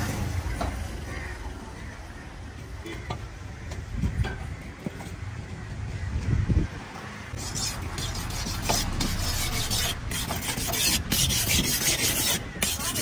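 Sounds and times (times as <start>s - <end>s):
blade scraping fish: 7.4s - 13.0s.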